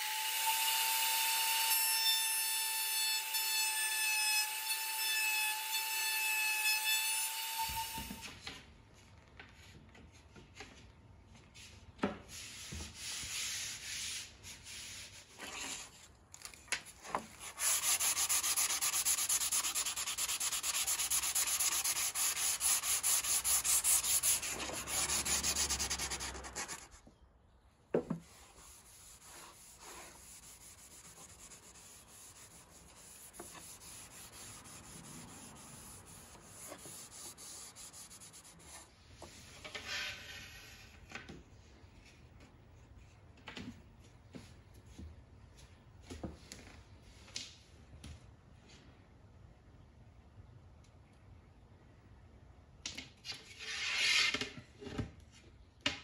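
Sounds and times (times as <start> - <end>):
sandpaper sanding wood: 12.5 - 15.4, 17.4 - 27.0, 28.2 - 38.9
rag rubbing a board: 17.3 - 27.0, 28.1 - 38.8.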